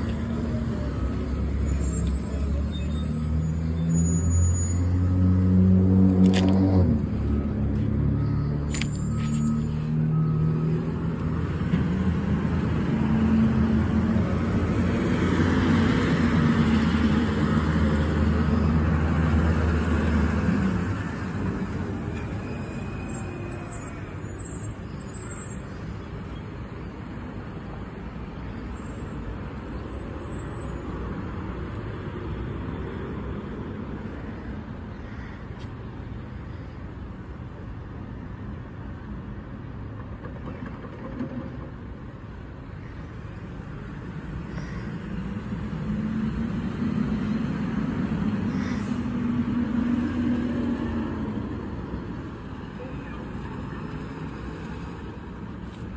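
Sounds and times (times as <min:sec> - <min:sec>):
traffic background: 0:00.0 - 0:55.9.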